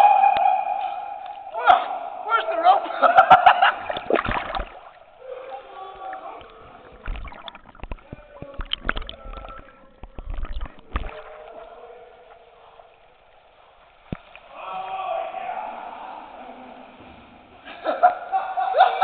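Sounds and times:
water splashing from swimming: 0:03.0 - 0:14.9.

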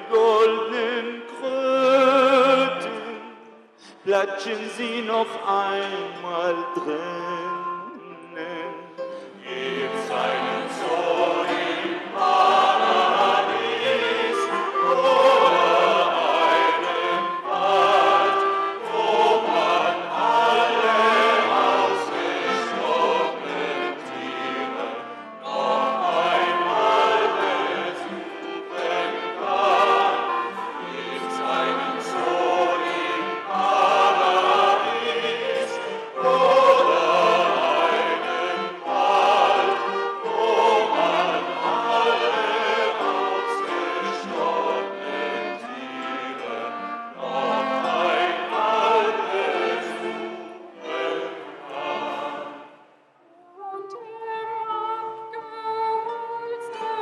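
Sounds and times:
mixed vocal ensemble singing: 0:07.6 - 0:53.0.

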